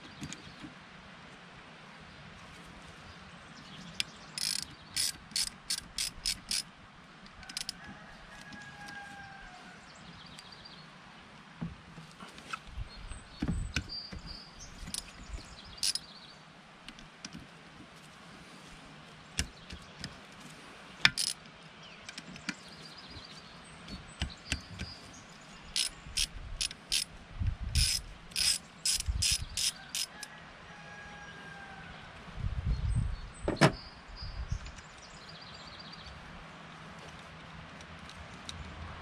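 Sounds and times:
hand ratchet clicking: 0:04.4 - 0:06.6, 0:15.8 - 0:16.0, 0:21.1 - 0:21.4, 0:25.7 - 0:27.1, 0:27.8 - 0:30.2.

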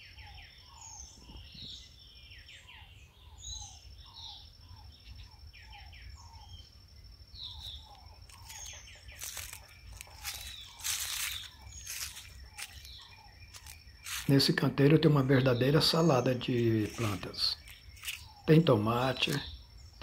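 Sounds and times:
birds chirping and trilling: 0:00.0 - 0:20.0
footsteps on dry leaves: 0:07.6 - 0:19.5.

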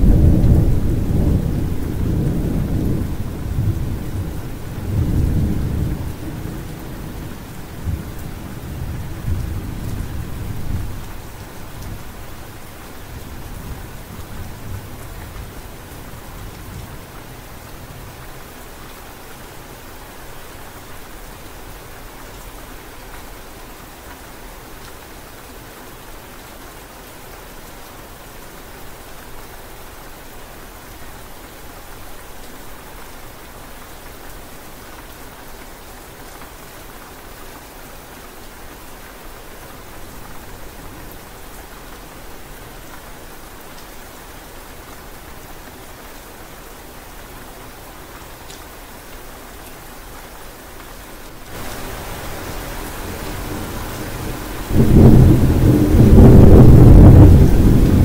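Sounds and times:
rolling thunder: 0:00.0 - 0:11.0, 0:51.5 - 0:58.0
steady rain: 0:00.0 - 0:58.0.

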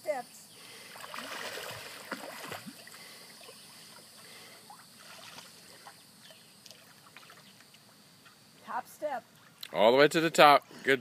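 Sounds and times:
child splashing in water: 0:00.9 - 0:03.6, 0:04.7 - 0:06.0.

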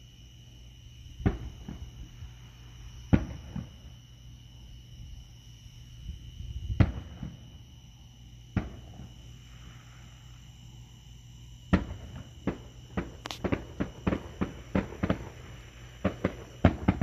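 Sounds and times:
night insects chirping: 0:00.0 - 0:17.0
distant firework booms: 0:01.2 - 0:02.2, 0:03.0 - 0:03.9, 0:06.6 - 0:07.6, 0:08.5 - 0:09.2, 0:11.7 - 0:17.0.

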